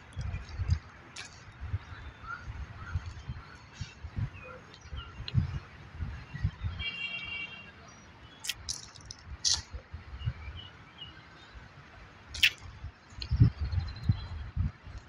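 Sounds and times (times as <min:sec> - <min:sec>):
bird chirps: 0:12.4 - 0:12.6.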